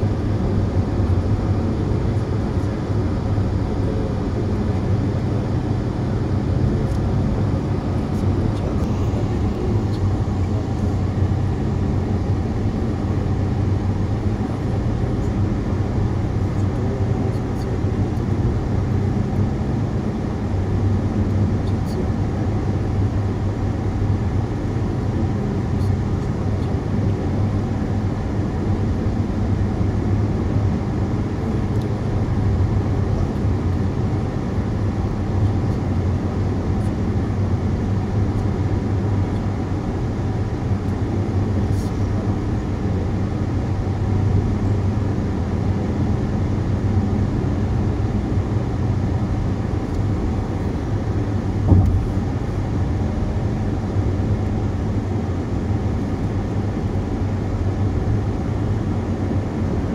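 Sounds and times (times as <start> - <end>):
car engine and tyre noise: 0.0 - 59.9
brief knock: 51.7 - 52.2.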